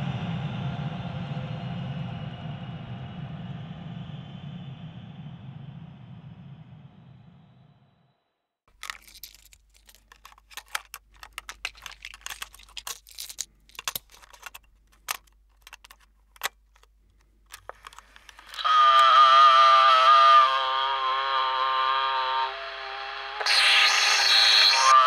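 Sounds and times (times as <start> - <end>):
plastic cases clicking: 8.7 - 18.7.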